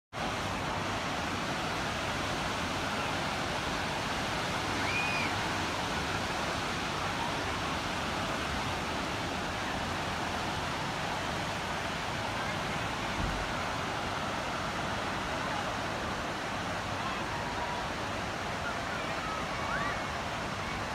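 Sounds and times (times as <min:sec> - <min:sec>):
faint crowd murmur: 0:06.2 - 0:20.9.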